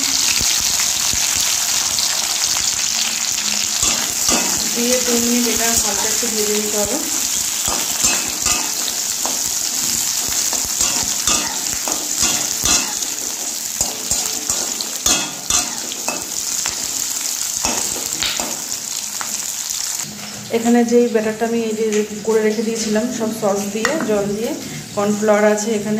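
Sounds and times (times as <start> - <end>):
vegetables sizzling in hot oil: 0.0 - 25.9
metal spatula scraping pan: 3.8 - 5.0, 7.2 - 18.6.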